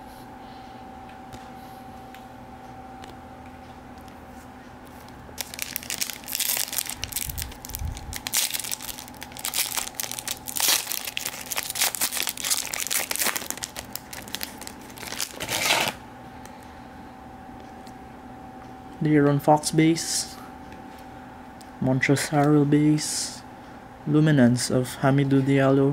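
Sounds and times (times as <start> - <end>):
foil wrapper crinkling and tearing: 5.4 - 16.0.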